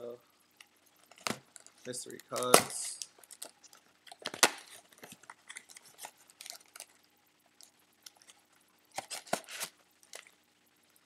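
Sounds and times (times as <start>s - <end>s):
cardboard rustling: 8.9s - 10.3s.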